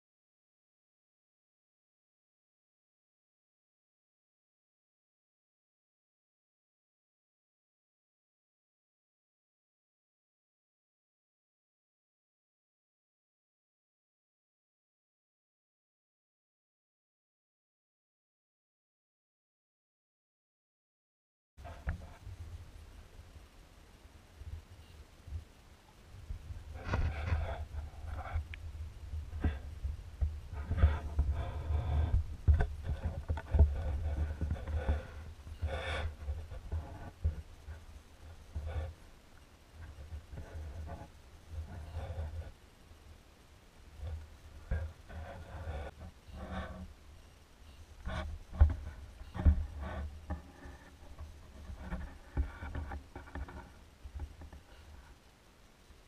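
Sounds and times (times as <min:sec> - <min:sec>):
low watery rumble: 0:21.7 - 0:39.2.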